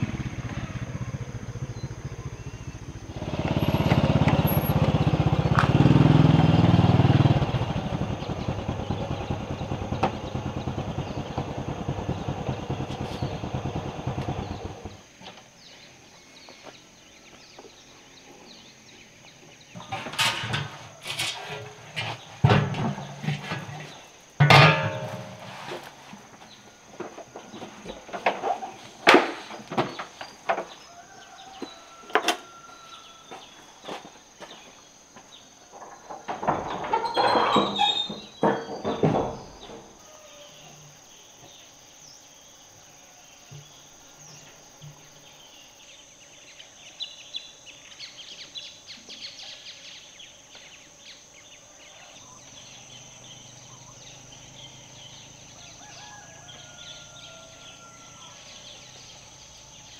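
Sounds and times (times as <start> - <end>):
birds chirping: 0.0 - 59.9
high insect drone: 0.0 - 59.9
rushing scraping clatter: 19.8 - 26.0
metal pot knocking and clanking: 24.4 - 25.2.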